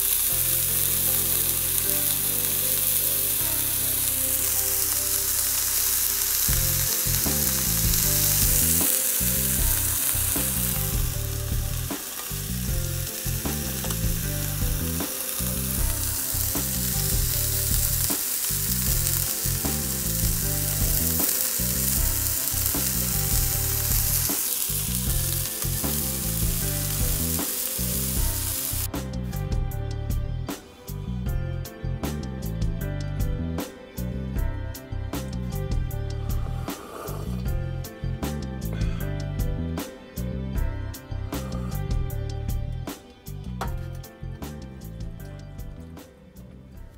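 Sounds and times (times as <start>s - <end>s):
steak sizzling on barbecue: 0.0s - 28.9s, 35.6s - 37.9s.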